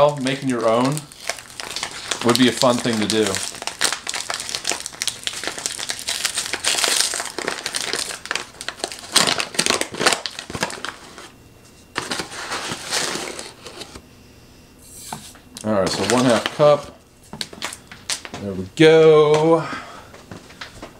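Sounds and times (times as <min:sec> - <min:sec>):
paper bag crinkling: 0:00.0 - 0:11.3, 0:11.9 - 0:14.0, 0:15.8 - 0:18.4.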